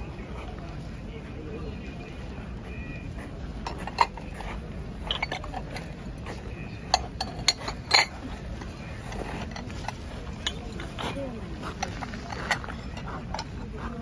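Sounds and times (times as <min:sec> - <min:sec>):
porcelain plates clinking: 0:03.6 - 0:14.0.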